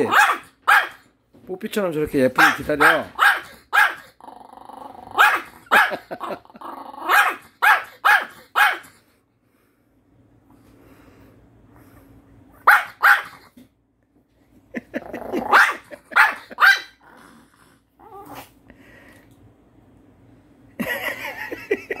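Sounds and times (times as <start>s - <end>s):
small dog barking: 0.0s - 1.0s, 2.4s - 4.1s, 5.1s - 6.2s, 7.1s - 8.9s, 12.6s - 13.5s, 15.4s - 17.0s
dog growling: 4.2s - 5.2s, 6.2s - 7.3s, 14.9s - 15.9s, 16.9s - 18.6s.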